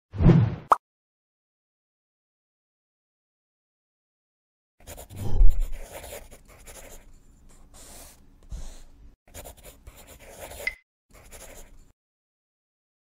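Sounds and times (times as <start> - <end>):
marker writing on board: 4.8 - 11.8.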